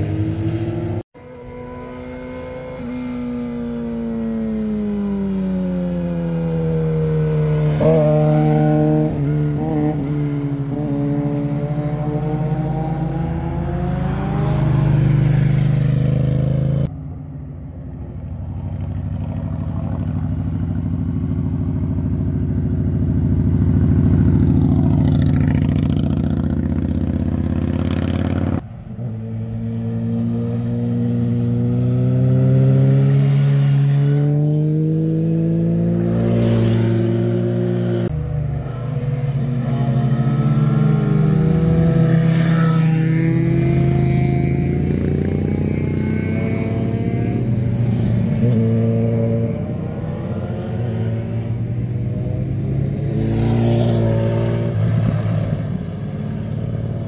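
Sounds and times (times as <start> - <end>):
motorcycle engines revving: 0.0 - 57.0.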